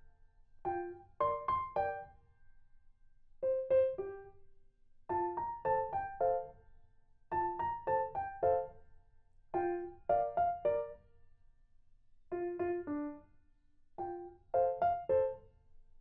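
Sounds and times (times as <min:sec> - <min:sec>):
piano music: 0:00.7 - 0:02.1, 0:05.1 - 0:06.5, 0:07.4 - 0:08.7, 0:09.6 - 0:11.0, 0:12.3 - 0:13.2, 0:14.0 - 0:15.4.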